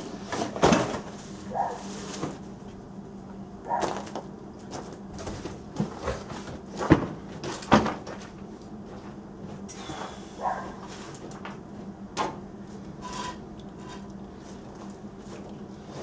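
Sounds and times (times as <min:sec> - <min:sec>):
faint steady hum: 0:00.0 - 0:16.0
tools and boxes clattering: 0:00.3 - 0:02.4, 0:03.7 - 0:08.4.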